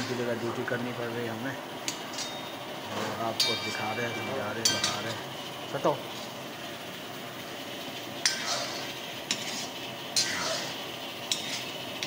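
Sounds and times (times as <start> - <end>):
cooking hiss: 0.0 - 12.0
ladle clanking against pan: 3.4 - 5.2
ladle stirring thick gravy: 7.2 - 12.0.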